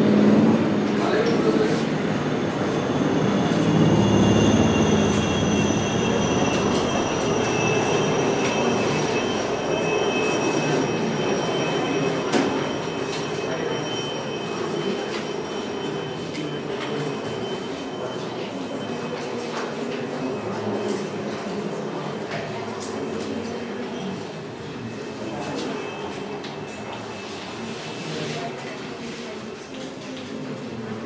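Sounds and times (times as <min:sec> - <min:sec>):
high squealing tones: 0:02.0 - 0:17.4.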